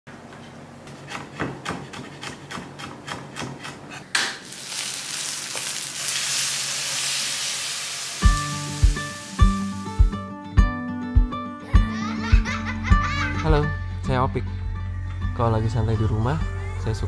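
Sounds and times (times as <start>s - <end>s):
chicken sizzling in a pan: 4.4s - 10.0s.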